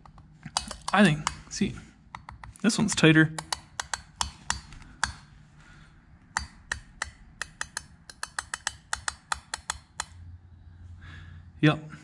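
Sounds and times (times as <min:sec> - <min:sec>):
metal reed valves clicking: 0:00.0 - 0:05.3, 0:06.3 - 0:10.2.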